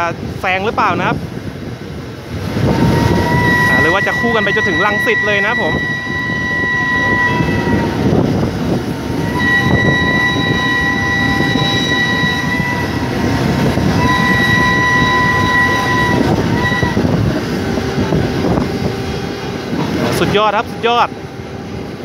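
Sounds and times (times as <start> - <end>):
train rumbling and clattering: 0.0 - 22.0
train whistle blasts: 2.7 - 8.2, 8.8 - 18.1.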